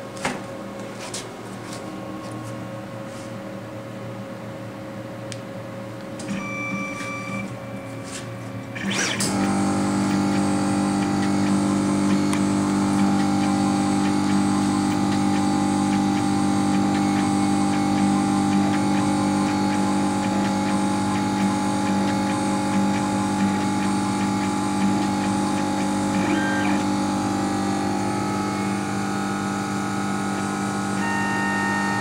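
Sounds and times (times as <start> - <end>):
short tone: 6.3 - 8.5, 26.2 - 27.0, 31.0 - 32.0.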